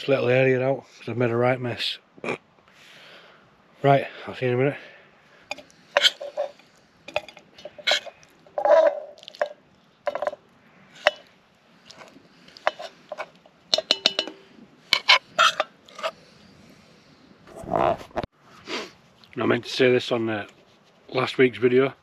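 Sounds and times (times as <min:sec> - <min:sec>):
metal spoon scraping frying pan: 0:05.5 - 0:10.4, 0:11.0 - 0:11.3, 0:11.9 - 0:16.2.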